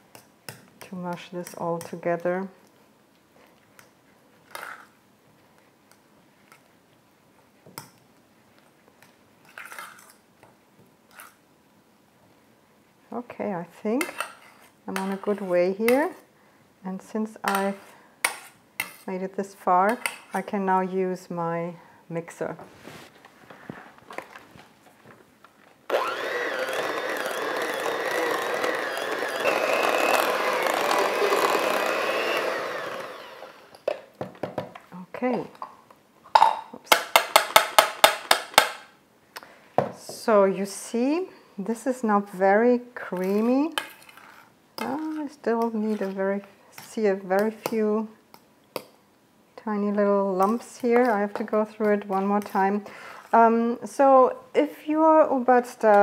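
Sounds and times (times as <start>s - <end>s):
beaters in thick mixture: 25.9s - 33.6s
electric hand mixer whine: 25.9s - 33.8s.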